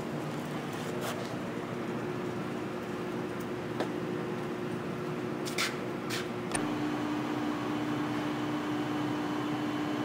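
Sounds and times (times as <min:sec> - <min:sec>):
grinder machine hum: 0:06.5 - 0:10.0.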